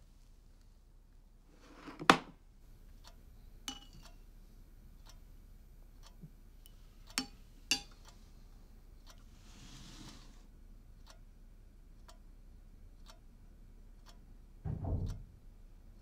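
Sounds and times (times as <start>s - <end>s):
wall clock ticking: 2.6s - 9.3s, 10.5s - 16.0s
sharp knock: 14.7s - 15.4s.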